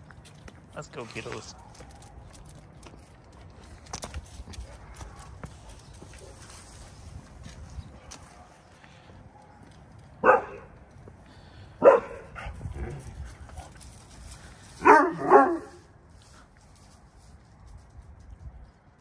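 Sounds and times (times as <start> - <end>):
dog barking: 10.2 - 10.7, 11.8 - 12.5, 14.8 - 15.8.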